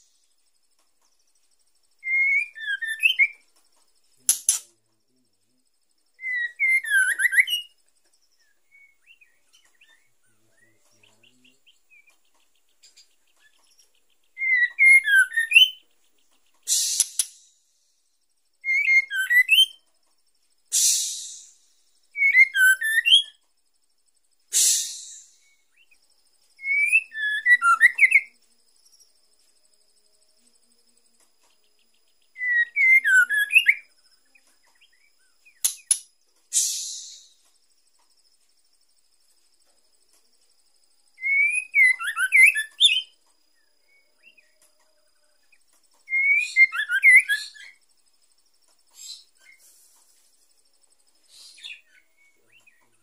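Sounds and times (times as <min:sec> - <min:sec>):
bird whistling warbling calls: 0:02.0 - 0:03.4, 0:14.4 - 0:15.8, 0:16.6 - 0:17.5, 0:18.7 - 0:19.8, 0:20.7 - 0:21.6, 0:22.2 - 0:23.3, 0:24.5 - 0:25.7, 0:26.6 - 0:28.3, 0:32.4 - 0:33.8, 0:35.6 - 0:37.4, 0:41.2 - 0:43.1, 0:46.1 - 0:47.8
bird harsh hissing: 0:16.6 - 0:18.0, 0:20.7 - 0:22.0, 0:24.5 - 0:25.8, 0:35.6 - 0:37.4, 0:48.9 - 0:50.3, 0:51.2 - 0:51.8.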